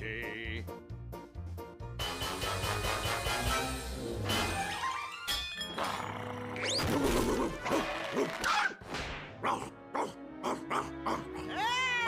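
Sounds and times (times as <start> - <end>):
cartoon orchestral music: 2.0 - 5.5.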